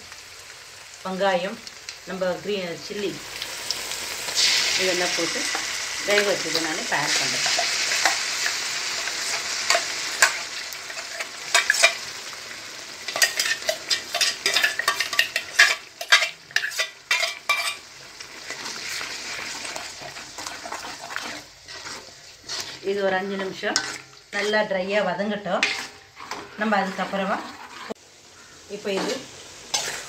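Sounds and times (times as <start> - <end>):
puree sizzling in hot oil: 0.0 - 30.0
spoon scraping metal pan: 5.2 - 12.1, 13.1 - 28.0, 28.8 - 30.0.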